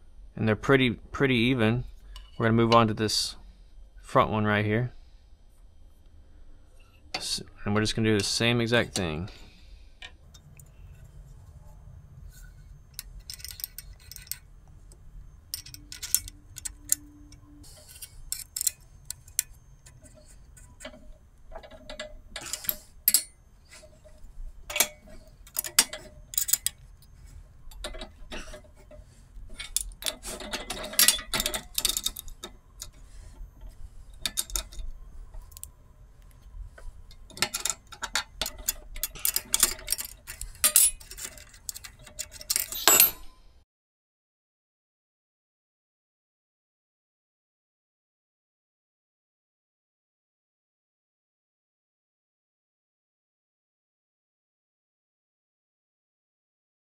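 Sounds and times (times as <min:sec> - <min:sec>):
steady low hum: 0:00.0 - 0:43.6
metal parts clinking: 0:12.3 - 0:14.5, 0:15.2 - 0:43.4.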